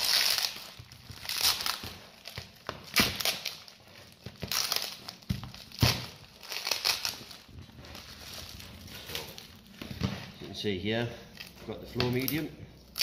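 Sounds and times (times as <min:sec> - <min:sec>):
plastic film crinkling: 0:00.0 - 0:10.0
sticky tape crackling: 0:00.0 - 0:10.0.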